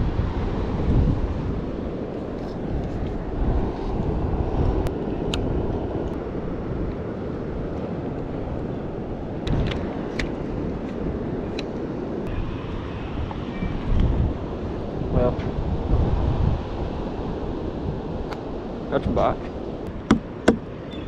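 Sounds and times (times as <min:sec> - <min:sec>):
ocean surf: 0:00.0 - 0:21.0
wind rumble on microphone: 0:00.0 - 0:21.0.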